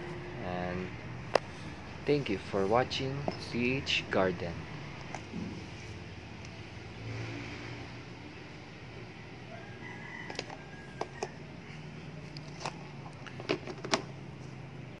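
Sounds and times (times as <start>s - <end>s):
distant rooster crowing: 9.1s - 12.0s
plastic containers clicking: 10.3s - 11.4s.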